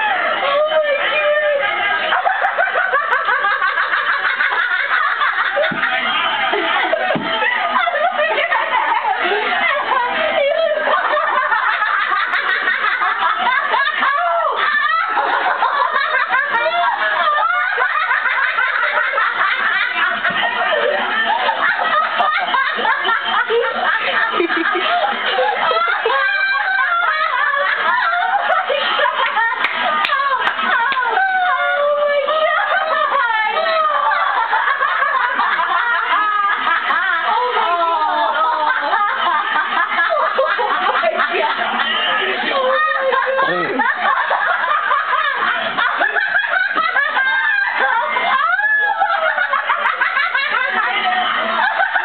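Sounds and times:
people laughing: 0.0s - 52.0s
sharp hand claps: 29.2s - 31.1s.

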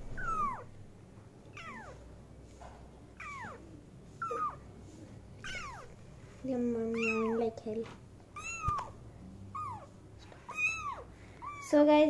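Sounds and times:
kittens meowing: 0.0s - 0.8s, 1.5s - 2.0s, 3.2s - 4.7s, 5.4s - 6.0s, 6.9s - 7.5s, 8.3s - 11.8s.

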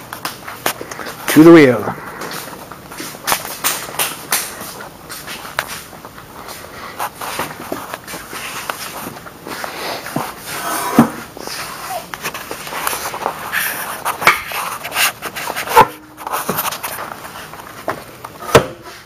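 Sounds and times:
rustling and shuffling: 0.0s - 19.0s
sharp knocks and clunks: 17.9s - 18.8s.

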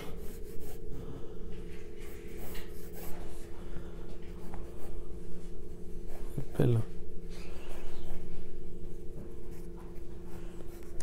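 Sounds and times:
pencil scratching on paper: 0.0s - 0.9s, 2.0s - 3.5s, 7.4s - 11.0s
steady low hum: 0.0s - 11.0s.

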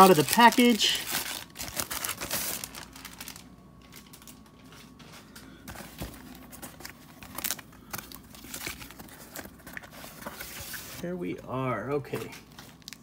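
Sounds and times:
plastic mailer crinkling: 0.0s - 11.1s.

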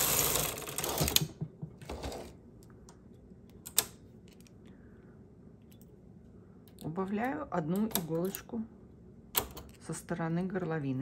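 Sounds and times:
knitting machine carriage sliding: 0.0s - 2.4s.

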